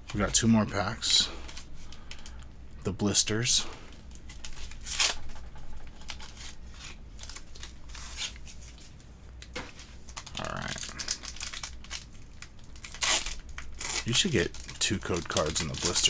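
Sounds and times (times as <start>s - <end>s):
packaging crinkling and tearing: 4.0s - 5.4s, 6.0s - 16.0s.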